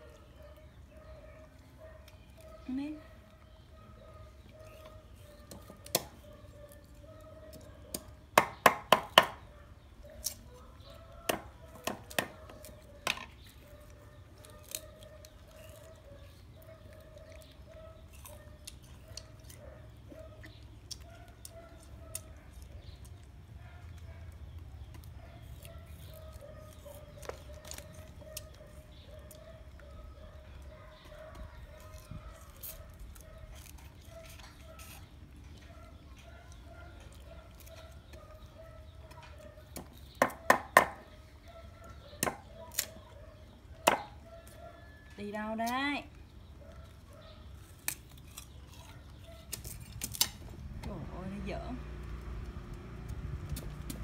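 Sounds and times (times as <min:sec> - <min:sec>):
knife chopping on wooden block: 0:08.4 - 0:09.4, 0:39.8 - 0:41.0.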